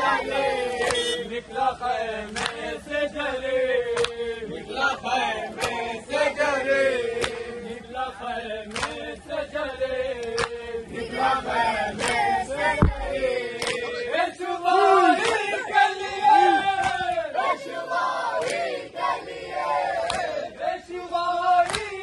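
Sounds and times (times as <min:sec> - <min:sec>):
crowd of men chanting: 0:00.0 - 0:22.0
heavy thump: 0:12.8 - 0:13.3
men shouting: 0:13.1 - 0:17.6.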